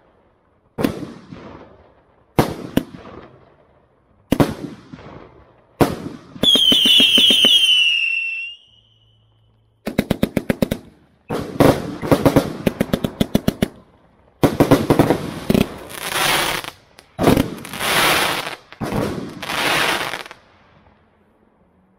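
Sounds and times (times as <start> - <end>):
firework shots firing: 0.7 - 3.7, 4.3 - 8.7, 9.8 - 20.6
firework whistle falling in pitch: 6.4 - 9.4.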